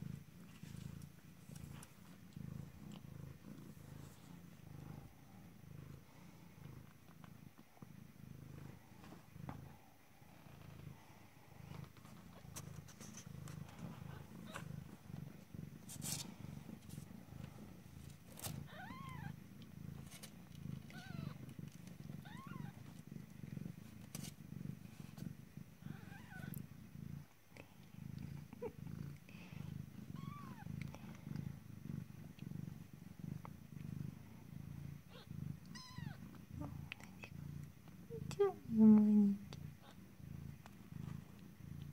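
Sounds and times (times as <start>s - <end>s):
cat purring: 0.0s - 41.9s.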